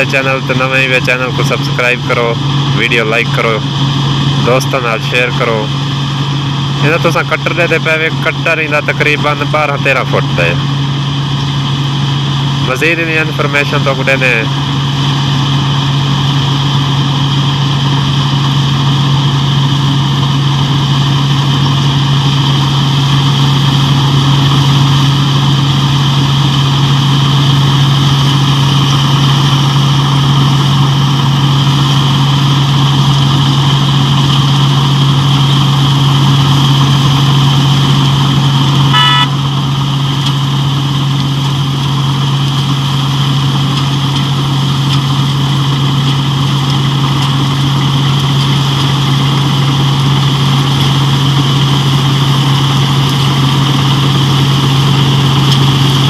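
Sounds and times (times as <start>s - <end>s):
combine harvester engine hum: 0.0s - 56.0s
whir of threshing gear: 0.0s - 56.0s
high beep: 38.9s - 39.4s.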